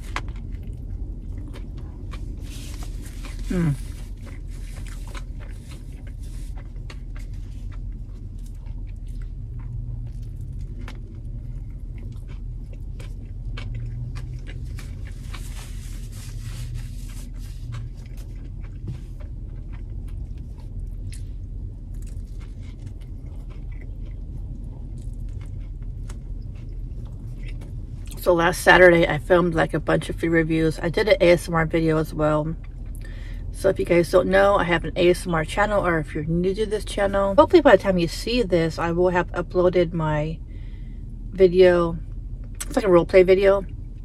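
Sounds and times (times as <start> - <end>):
person chewing sandwich: 0.0 - 28.2
steady low rumble: 0.0 - 44.0.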